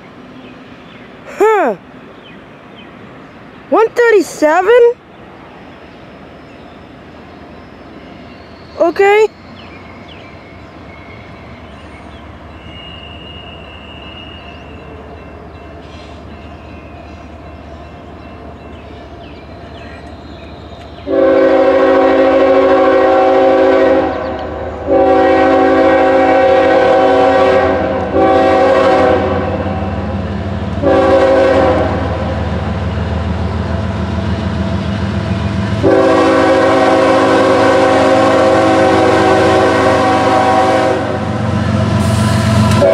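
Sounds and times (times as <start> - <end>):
diesel locomotive rumbling: 0.0 - 42.9
train air horn blasts: 21.1 - 29.9, 30.8 - 32.5, 35.8 - 42.9.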